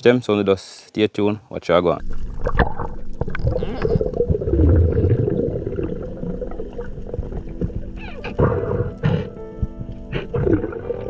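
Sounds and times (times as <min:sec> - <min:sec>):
underwater clicks: 0:02.0 - 0:04.2
low underwater rumble: 0:02.0 - 0:11.0
underwater rushing and gurgling: 0:02.0 - 0:11.0.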